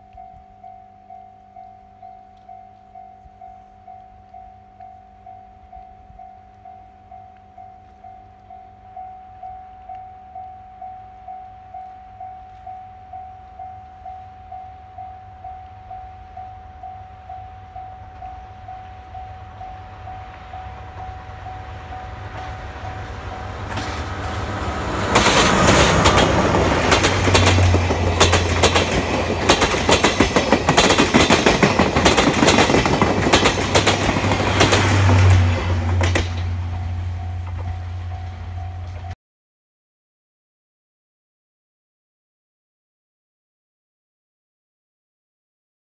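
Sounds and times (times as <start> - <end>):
level-crossing warning bell: 0.0 - 39.2
train wheels clattering over rails: 22.2 - 37.8.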